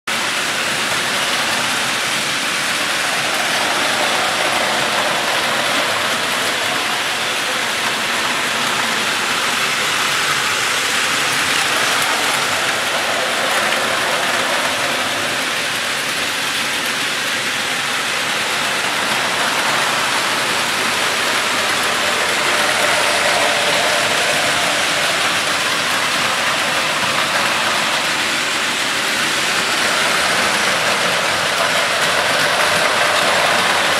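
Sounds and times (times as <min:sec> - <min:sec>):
toy train motors running: 0:00.1 - 0:33.9.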